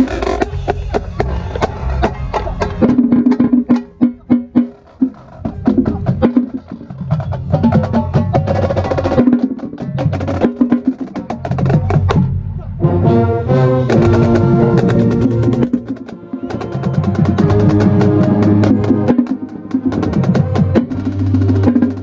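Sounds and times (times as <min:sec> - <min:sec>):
drumline strikes: 0:00.0 - 0:22.0
brass playing: 0:12.1 - 0:21.8.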